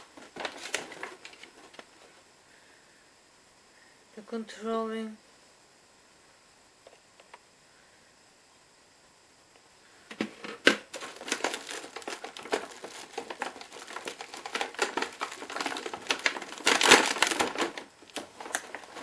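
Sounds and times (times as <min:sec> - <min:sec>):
plastic packaging crinkling: 0:00.0 - 0:01.9, 0:10.6 - 0:19.0.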